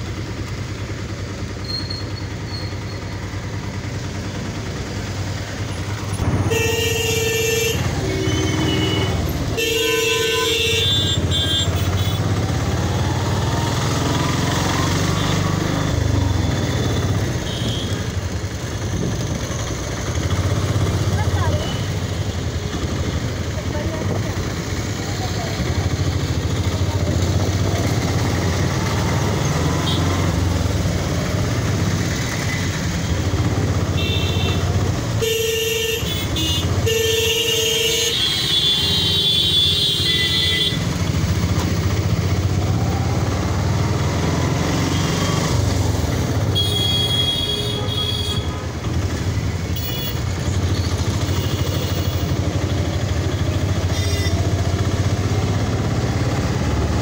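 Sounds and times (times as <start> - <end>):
engine and road rumble: 0.0 - 57.0
vehicle horns honking: 6.2 - 12.4, 16.5 - 18.2, 29.6 - 30.4, 33.6 - 41.2, 46.3 - 48.7, 49.6 - 50.4, 53.3 - 54.6.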